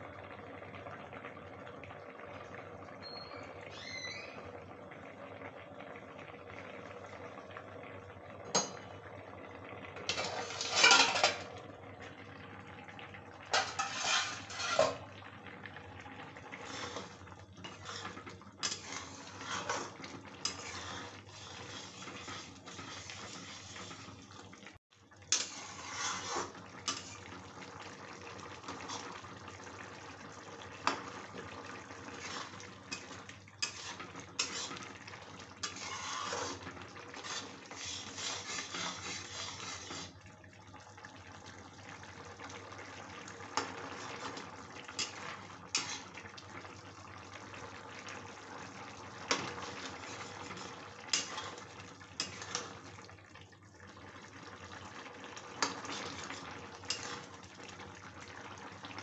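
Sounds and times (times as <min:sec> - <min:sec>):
metal spatula scraping pan: 0:10.1 - 0:11.5, 0:13.5 - 0:15.1, 0:16.6 - 0:24.1, 0:25.3 - 0:27.2, 0:32.1 - 0:35.0, 0:35.6 - 0:40.2, 0:45.0 - 0:46.1, 0:49.3 - 0:51.6, 0:52.2 - 0:52.7, 0:55.6 - 0:57.3
gravy sloshing: 0:13.1 - 0:24.4, 0:25.4 - 0:40.2.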